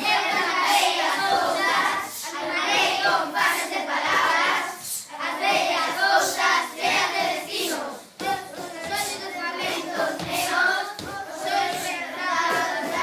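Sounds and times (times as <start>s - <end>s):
children rapping in chorus: 0.0s - 13.0s
hand claps: 8.2s - 13.0s.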